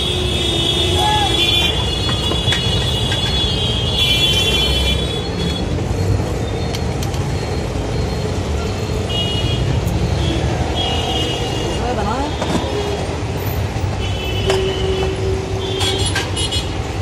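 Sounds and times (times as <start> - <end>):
traffic rumble: 0.0 - 17.0
vehicle horn: 14.0 - 16.7.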